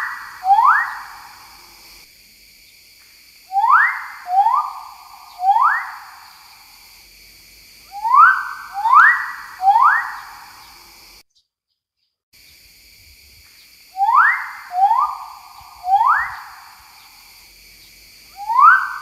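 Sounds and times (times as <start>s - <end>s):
bird whistles sweeping upward: 3.5s - 6.0s, 18.4s - 19.0s.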